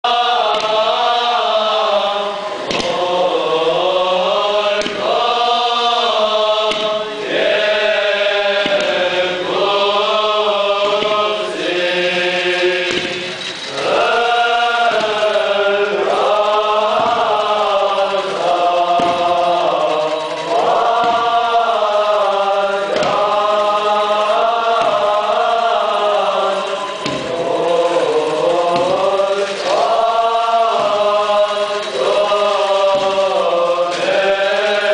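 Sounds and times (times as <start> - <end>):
group of voices chanting: 0.0 - 34.9.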